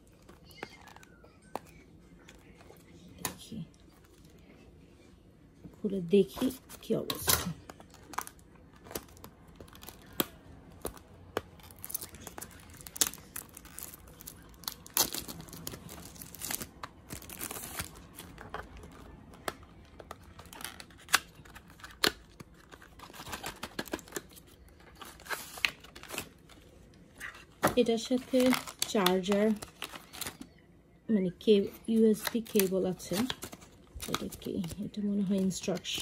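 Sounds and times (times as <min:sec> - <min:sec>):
wrapping tearing and crinkling: 0:06.5 - 0:30.6, 0:31.9 - 0:36.0.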